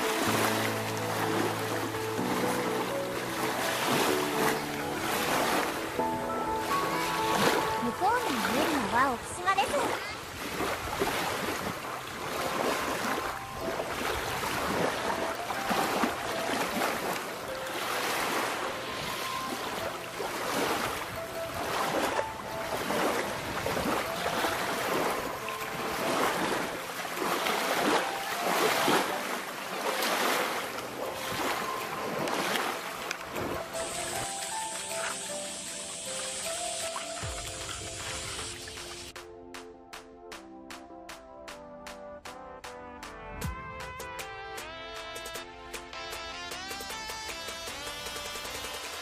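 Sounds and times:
waves lapping on pebbles: 0.0s - 39.2s
wind on microphone: 7.3s - 15.1s, 20.6s - 25.2s.

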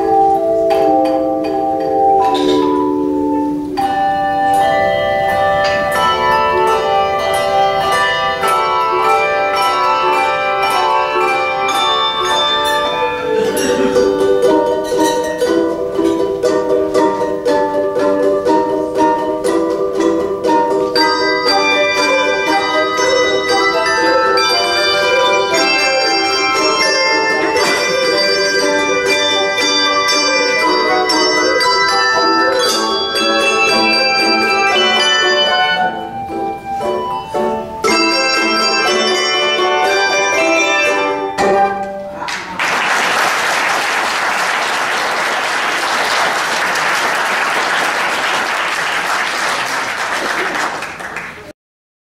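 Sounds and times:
handbell choir ringing chords: 3.8s - 17.2s, 19.2s - 41.8s
audience applause: 42.2s - 51.5s.

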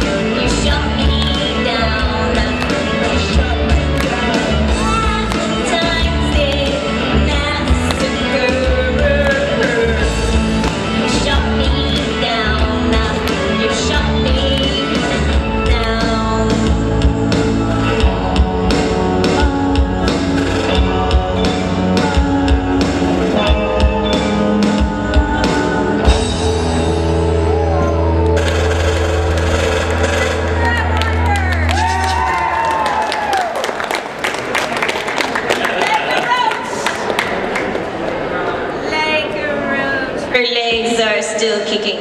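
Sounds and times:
woman singing lead: 0.0s - 27.7s
bass guitar: 0.0s - 33.0s
electric guitars: 0.0s - 33.4s.

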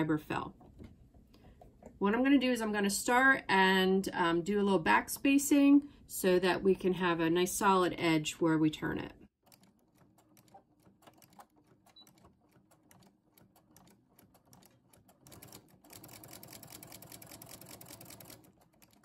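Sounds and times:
sewing machine stitching: 9.4s - 19.0s.

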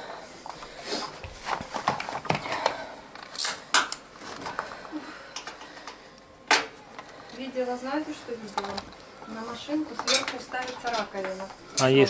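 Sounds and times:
clattering of washing machine parts: 9.9s - 11.9s.

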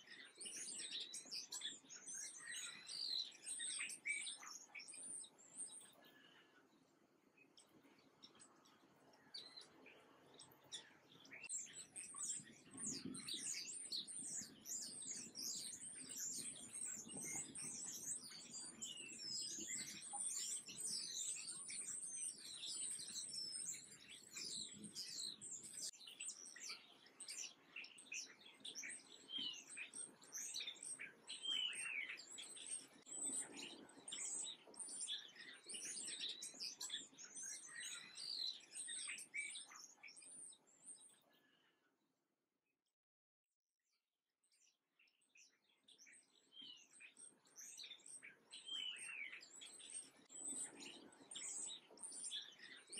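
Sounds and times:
songbirds chirping: 0.0s - 42.0s, 44.5s - 52.9s.

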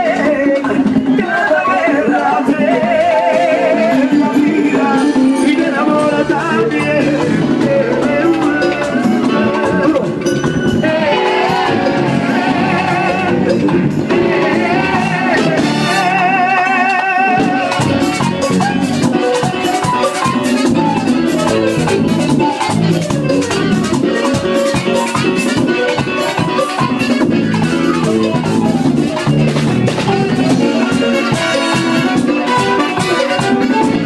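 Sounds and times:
man singing into a microphone: 0.0s - 19.4s
keyboard: 0.0s - 34.0s
hand drums: 2.2s - 16.2s, 17.0s - 34.0s.

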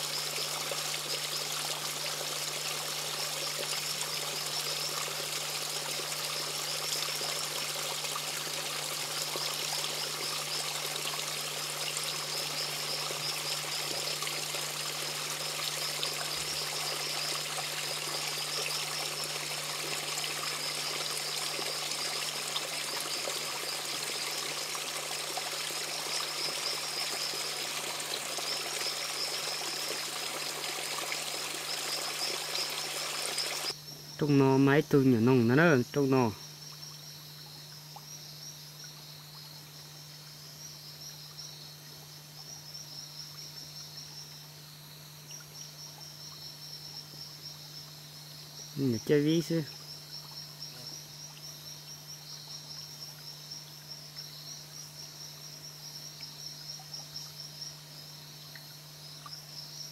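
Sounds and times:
stream splashing over rocks: 0.0s - 33.8s
insect chirring: 0.0s - 59.9s.

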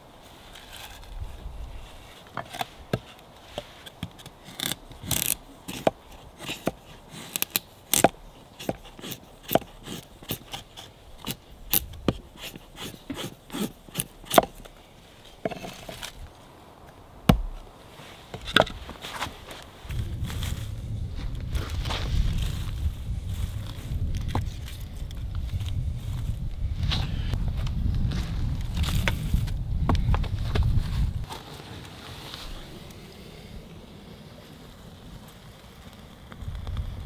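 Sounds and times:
knife scraping wooden stick: 2.1s - 14.7s.

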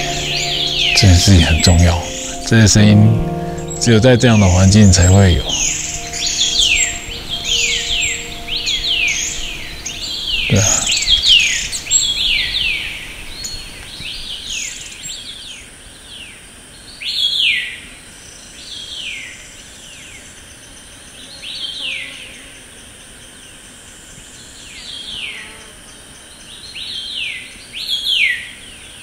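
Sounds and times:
songbird singing: 0.0s - 29.0s.

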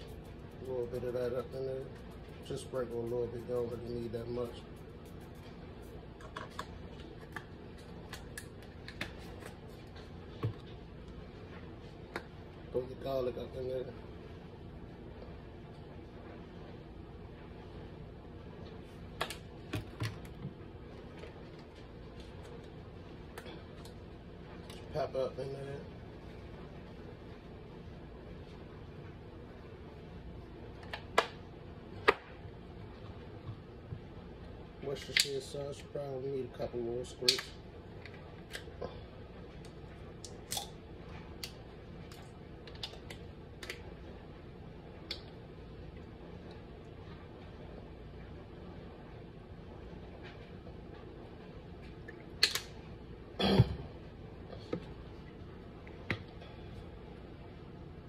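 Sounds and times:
room tone hum: 0.0s - 58.0s.

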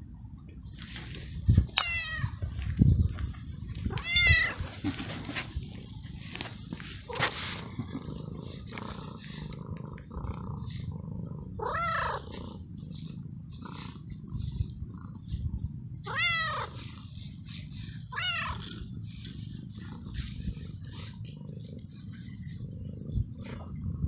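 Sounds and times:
cat meowing: 1.8s - 2.4s, 3.9s - 4.6s, 11.6s - 12.3s, 16.0s - 16.8s, 18.1s - 18.6s
cat purring: 3.4s - 24.0s.

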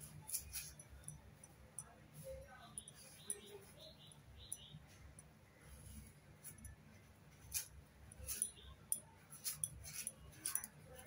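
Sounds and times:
blade cutting strips of peel: 7.4s - 11.0s.

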